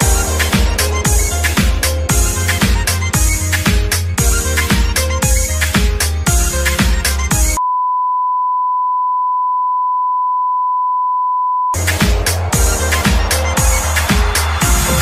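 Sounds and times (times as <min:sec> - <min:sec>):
music with steady beat: 0:00.0 - 0:07.6, 0:11.8 - 0:15.0.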